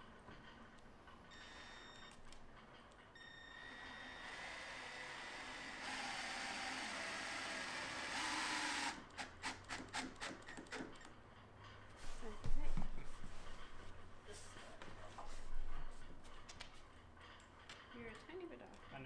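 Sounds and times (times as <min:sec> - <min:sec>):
power drill whirring: 0:03.2 - 0:10.0.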